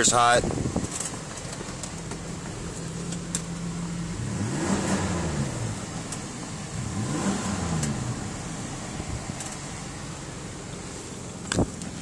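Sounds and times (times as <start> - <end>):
truck engine idling and revving: 0.0 - 12.0.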